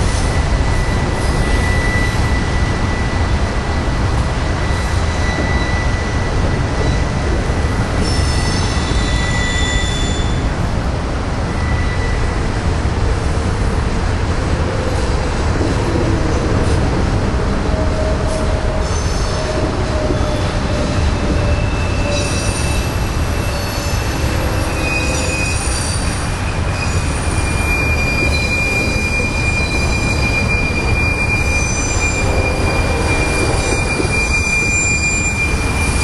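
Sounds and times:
high-pitched wheel squeal: 0.0 - 3.8, 4.5 - 10.5, 11.5 - 12.4, 18.0 - 36.0
freight train wheels rumbling on rails: 0.0 - 36.0.

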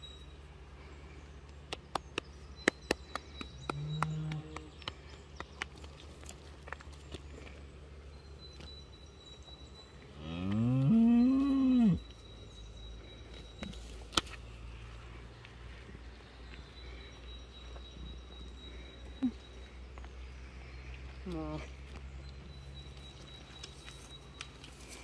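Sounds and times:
cow mooing: 10.2 - 12.0.

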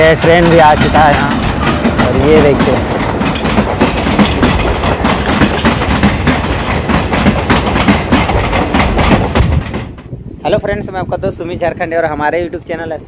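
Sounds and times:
train wheels clacking: 0.0 - 11.0
train rumble: 0.0 - 13.0.

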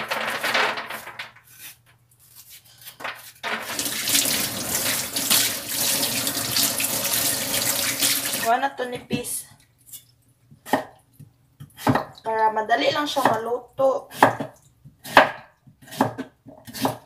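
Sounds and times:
tap water splashing into sink: 3.7 - 8.5.

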